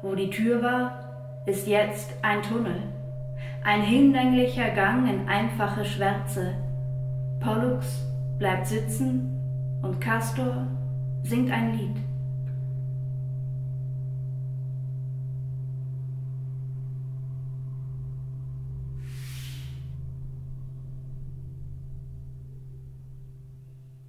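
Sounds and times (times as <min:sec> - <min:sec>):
electronic drone: 0:01.8 - 0:24.0
burst of hiss: 0:19.0 - 0:20.0.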